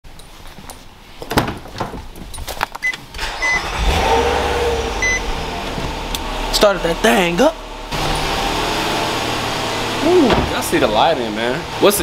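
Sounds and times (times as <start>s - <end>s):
car engine starting and idling: 3.1s - 12.0s
short electronic beeps: 3.4s - 3.7s, 5.0s - 5.3s.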